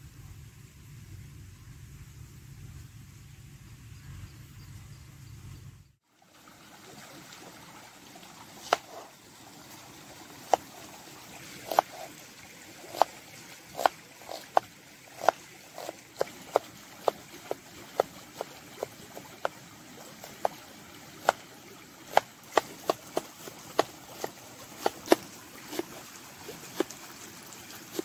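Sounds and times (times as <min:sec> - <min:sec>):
low rumble: 0:00.0 - 0:06.0
stream rushing: 0:06.1 - 0:28.0
knife chopping on wooden board: 0:08.6 - 0:09.1, 0:10.5 - 0:10.7, 0:11.7 - 0:12.1, 0:12.8 - 0:13.1, 0:13.8 - 0:14.6, 0:15.2 - 0:17.2, 0:20.2 - 0:20.5, 0:22.1 - 0:27.0.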